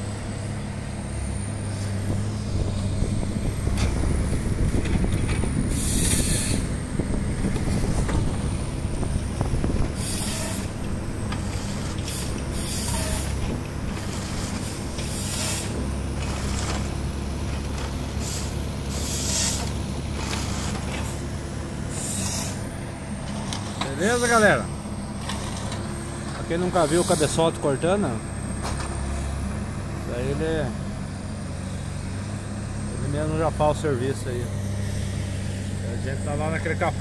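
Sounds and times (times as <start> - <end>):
diesel engine and hydraulic drone: 0.0 - 37.0
saw cutting through logs: 5.7 - 6.8, 9.9 - 10.8, 11.4 - 22.7, 23.7 - 24.8, 26.5 - 28.2.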